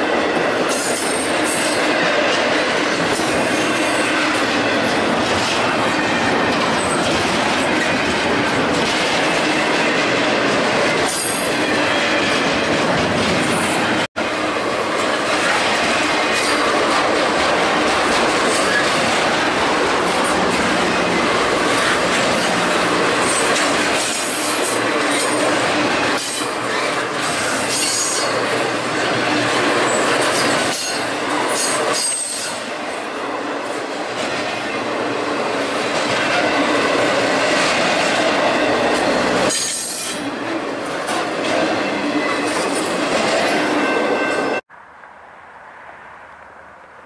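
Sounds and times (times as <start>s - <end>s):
steel wheels rushing on rail: 0.0s - 44.6s
high wheel squeal: 18.4s - 19.4s, 20.2s - 32.6s, 38.6s - 40.3s.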